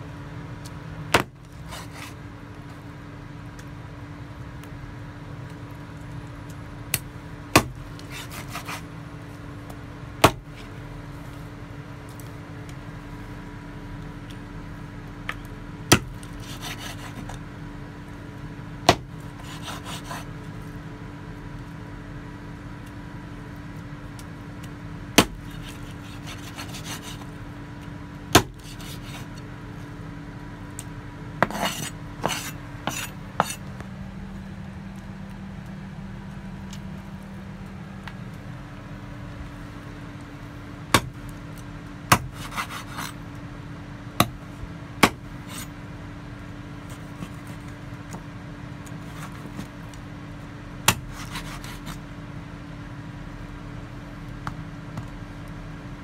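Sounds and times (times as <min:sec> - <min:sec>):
steady low hum: 0:00.0 - 0:56.0
cleaver chopping on wooden board: 0:01.1 - 0:01.4, 0:07.6 - 0:08.8, 0:10.2 - 0:10.5, 0:15.9 - 0:17.3, 0:18.8 - 0:20.2, 0:25.2 - 0:27.2, 0:28.4 - 0:29.2, 0:31.4 - 0:33.6, 0:41.0 - 0:41.2, 0:42.1 - 0:43.1, 0:44.2 - 0:44.4, 0:45.0 - 0:45.6, 0:50.9 - 0:52.0
scraping and handling noises: 0:01.4 - 0:02.8, 0:07.8 - 0:09.8, 0:16.1 - 0:17.4, 0:19.2 - 0:20.8, 0:25.3 - 0:30.0, 0:31.4 - 0:35.3, 0:42.2 - 0:43.2, 0:44.2 - 0:45.8, 0:46.8 - 0:50.0, 0:50.9 - 0:52.0.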